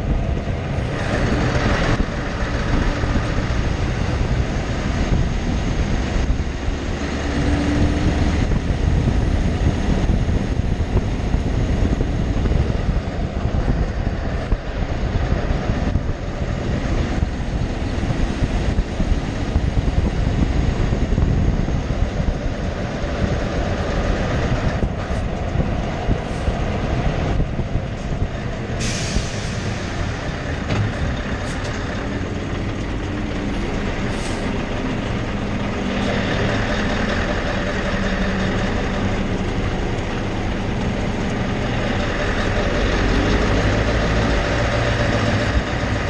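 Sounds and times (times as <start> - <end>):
truck engine hum: 0.0 - 46.0
truck tyre rumble on asphalt: 0.0 - 46.0
short air hiss: 28.8 - 29.8.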